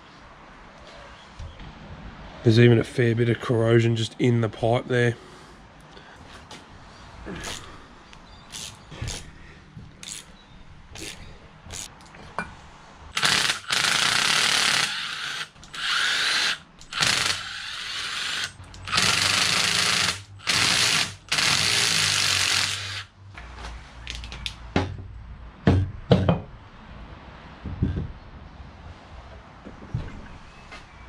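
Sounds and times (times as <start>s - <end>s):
impact driver spinning bolts: 13.2s - 23.0s
sharp metal clunks: 25.7s - 26.5s.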